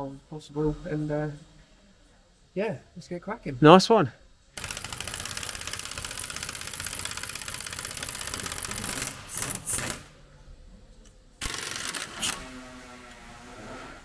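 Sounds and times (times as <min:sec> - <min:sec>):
impact wrench hammering: 0:04.6 - 0:10.1.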